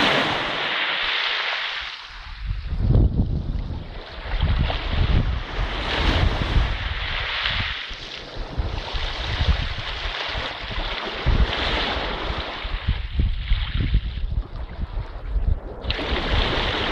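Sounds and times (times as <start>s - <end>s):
waves breaking on pebble beach: 0.0s - 2.6s, 4.0s - 13.0s, 15.9s - 16.9s
wind buffeting microphone: 2.1s - 16.9s.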